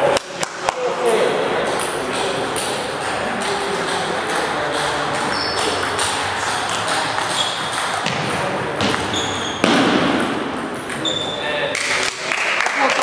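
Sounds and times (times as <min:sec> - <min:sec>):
hall background noise: 0:00.0 - 0:13.0
table tennis ball hits: 0:01.6 - 0:11.3.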